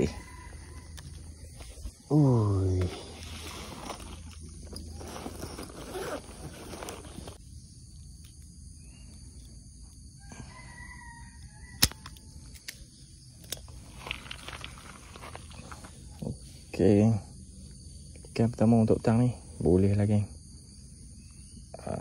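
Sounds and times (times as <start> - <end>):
rooster crowing faintly: 0.0 - 1.5, 10.2 - 12.2
rustling: 2.7 - 7.4, 13.7 - 16.1
sharp click: 11.8 - 12.8.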